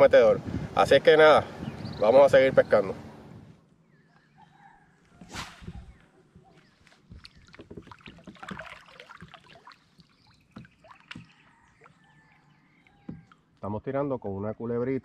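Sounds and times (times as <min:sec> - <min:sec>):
water lapping: 0:06.4 - 0:13.4
knocks and clicks from kayak: 0:07.1 - 0:12.0, 0:12.9 - 0:13.4.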